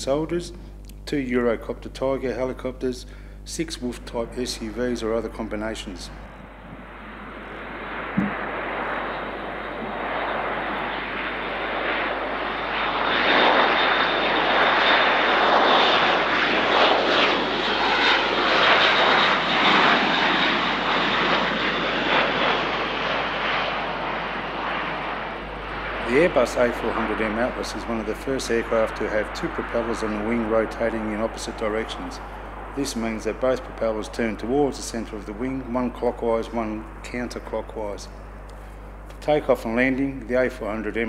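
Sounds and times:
high engine whine: 0.0s - 41.0s
turboprop aircraft flying past: 2.4s - 41.0s.

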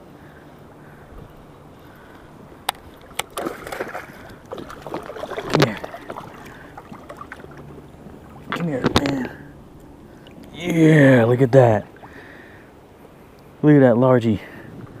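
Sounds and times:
fish splashing in water: 2.9s - 8.6s.

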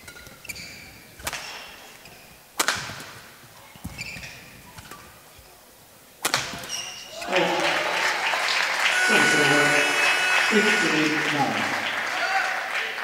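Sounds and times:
shoes squeaking on court floor: 0.0s - 2.4s, 3.4s - 5.6s, 6.5s - 7.3s
racket hitting shuttlecock: 2.6s - 3.2s.

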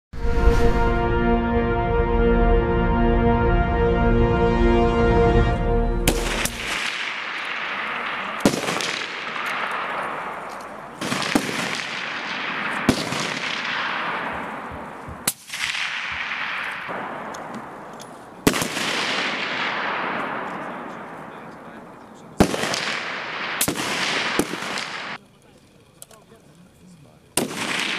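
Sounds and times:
rifle shots with rolling echo: 6.1s - 25.2s, 27.4s - 27.9s.

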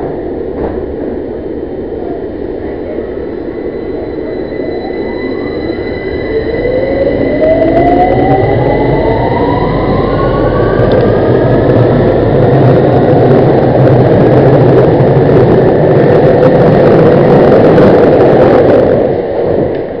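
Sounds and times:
wheels rumbling on track: 0.0s - 20.0s
train motor whine: 3.2s - 18.8s.

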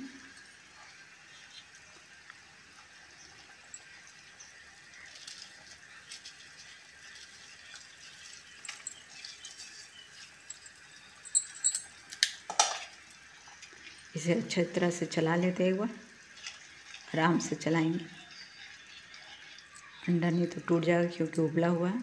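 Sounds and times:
steel utensils clinking: 8.4s - 12.9s.

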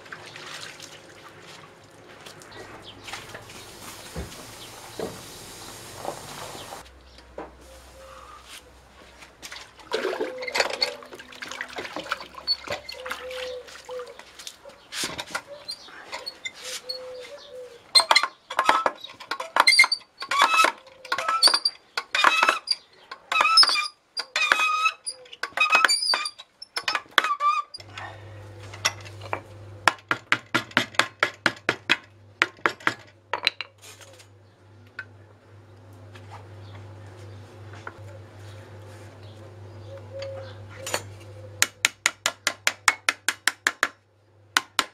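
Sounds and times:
metal tools clinking on hoops: 10.3s - 11.1s.

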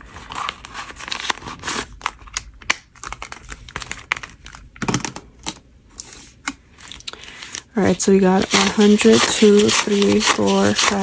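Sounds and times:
banknotes crackling: 7.2s - 11.0s.

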